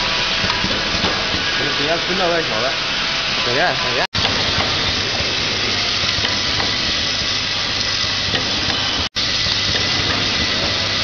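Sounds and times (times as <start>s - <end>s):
machine mechanical hiss: 0.1s - 11.0s.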